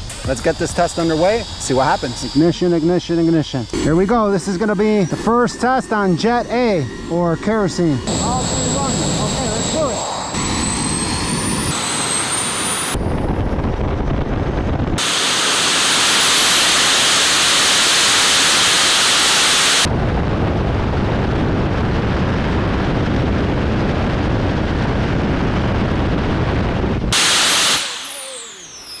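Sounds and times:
jet engines roaring and whining: 0.0s - 29.0s.

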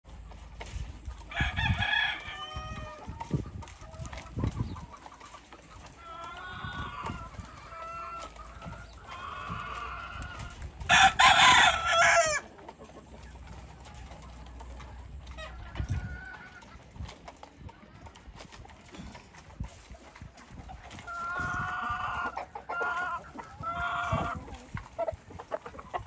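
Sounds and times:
roosters crowing: 0.9s - 4.8s, 5.7s - 12.6s, 21.0s - 26.0s.

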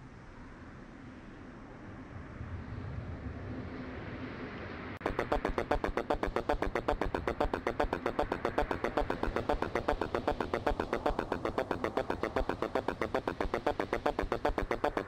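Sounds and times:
rapid even pulsing: 5.0s - 15.0s.

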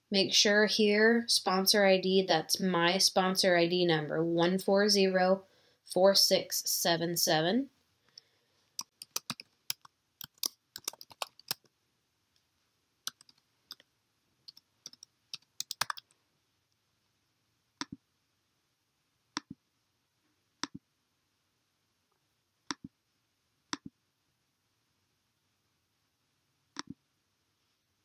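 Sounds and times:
computer keyboard typing: 8.8s - 11.7s, 13.1s - 13.8s, 14.5s - 16.1s.

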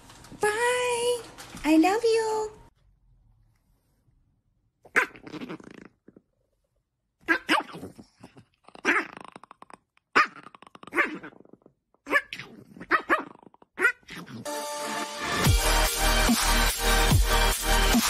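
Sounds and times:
dog barking and growling: 4.8s - 6.3s, 7.2s - 15.7s
electronic music: 14.5s - 18.0s.

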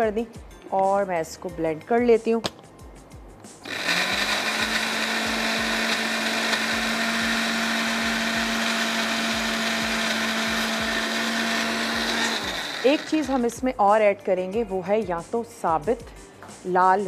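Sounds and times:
electric blender motor running: 3.6s - 13.5s.

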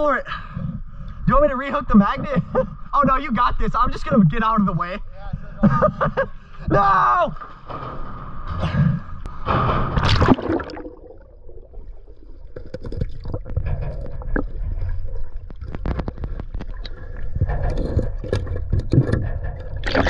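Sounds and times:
water sloshing and splashing: 9.6s - 20.0s
knocks and scrapes of handling: 12.2s - 19.9s.

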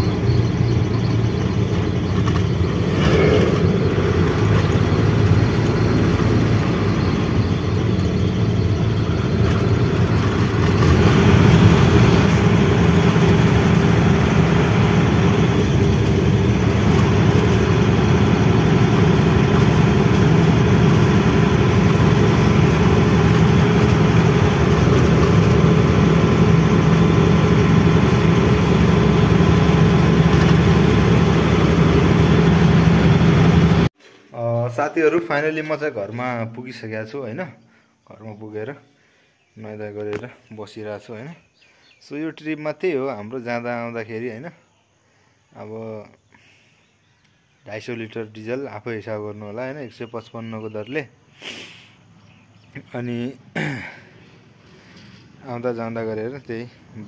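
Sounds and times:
truck diesel engine running: 0.0s - 33.9s
road noise: 0.0s - 34.0s, 50.6s - 57.0s.

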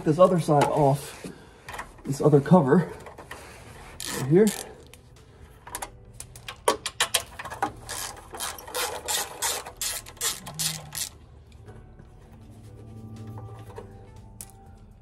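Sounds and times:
socket ratchet clicking: 5.7s - 11.2s.

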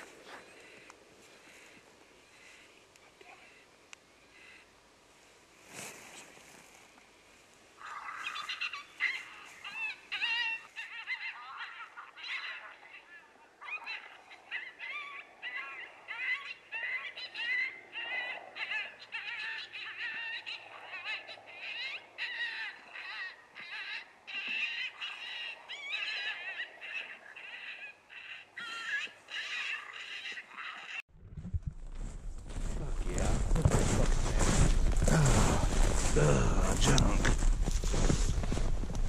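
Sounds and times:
coyotes yipping and howling: 7.8s - 31.0s.

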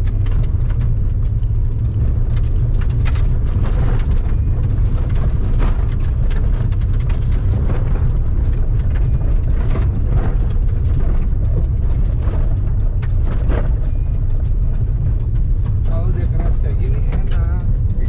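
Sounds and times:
car road rumble: 0.0s - 18.0s.

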